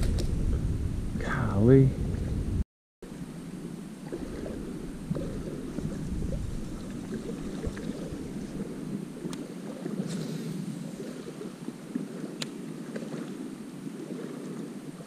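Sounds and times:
water rumbling: 0.0s - 15.0s
wind on microphone: 0.0s - 15.0s
faint clicks: 9.2s - 9.5s, 12.4s - 13.1s.

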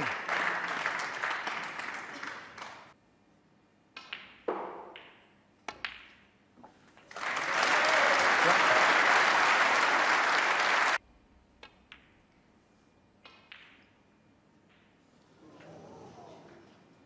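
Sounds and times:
audience applause: 0.0s - 2.9s, 7.1s - 11.0s.

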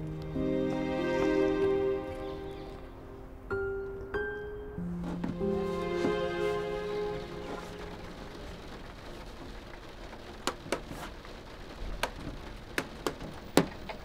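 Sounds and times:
faint steady hiss: 0.0s - 14.0s
television switching on: 5.0s - 10.7s.

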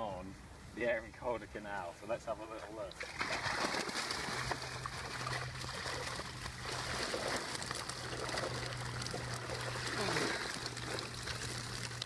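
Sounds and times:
low steady hum: 0.0s - 12.0s
water streaming and trickling: 2.6s - 12.0s.

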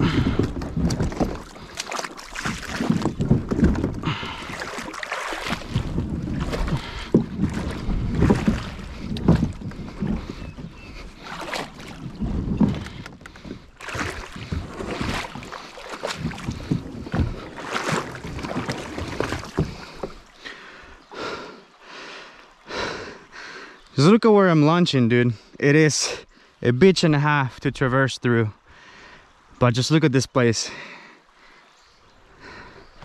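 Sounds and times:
kayak hull scraping on rocks: 0.0s - 20.6s
footsteps sloshing through water: 0.0s - 24.0s.

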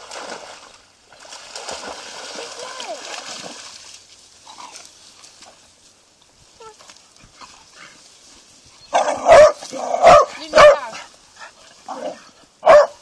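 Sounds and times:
dog barking: 8.9s - 11.0s, 11.9s - 13.0s.

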